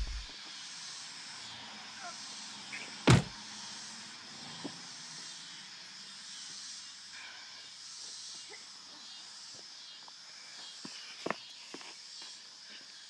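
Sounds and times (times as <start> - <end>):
outdoor hiss: 0.0 - 0.3
people grappling knocks and scuffs: 0.0 - 0.3, 3.1 - 3.3.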